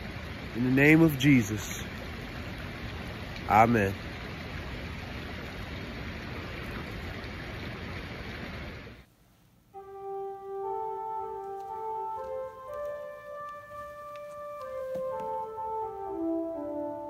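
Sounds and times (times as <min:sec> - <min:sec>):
slow instrumental music: 0:09.7 - 0:17.0.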